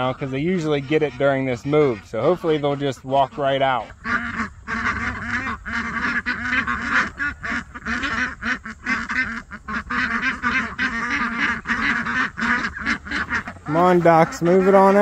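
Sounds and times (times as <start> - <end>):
ducks quacking: 0.0 - 15.0.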